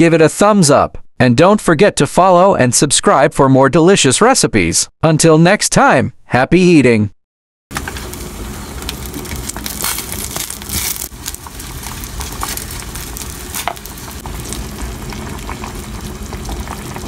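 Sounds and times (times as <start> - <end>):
broth boiling in a pot: 7.7 - 17.0.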